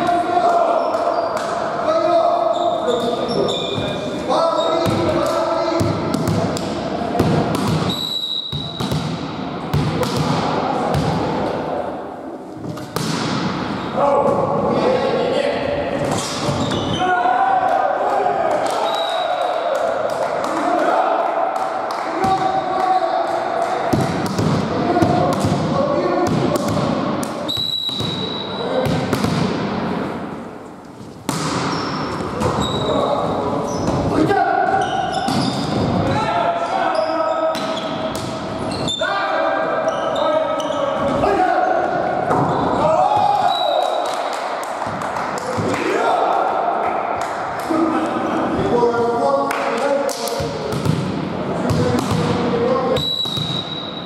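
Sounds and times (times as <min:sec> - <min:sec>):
players' voices: 0:00.0 - 0:53.7
volleyball being hit: 0:05.8 - 0:07.9, 0:08.5 - 0:11.3, 0:12.7 - 0:13.7, 0:28.8 - 0:29.8, 0:31.3 - 0:32.6
volleyball thuds: 0:05.8 - 0:07.9
referee whistle blast: 0:07.9 - 0:08.8, 0:27.5 - 0:28.6, 0:53.0 - 0:54.0.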